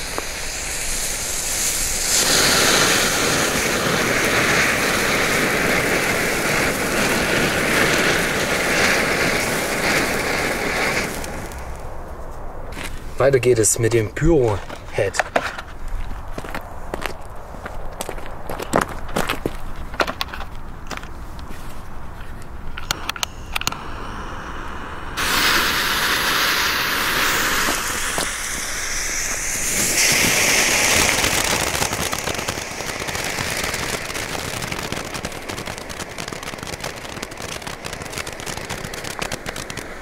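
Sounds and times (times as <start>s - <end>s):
firework fountain hissing: 0.0s - 12.1s, 22.5s - 40.0s
sparks crackling: 0.0s - 40.0s
clicks: 22.4s - 23.8s.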